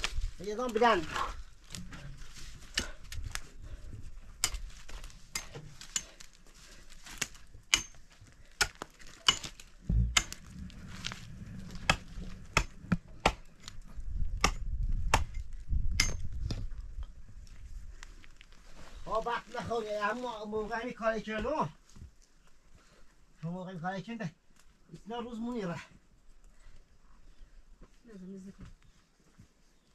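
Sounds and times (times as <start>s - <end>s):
hatchet chopping wood: 7.2s - 10.5s, 11.8s - 13.5s, 14.3s - 16.3s
low rumble: 9.8s - 17.4s.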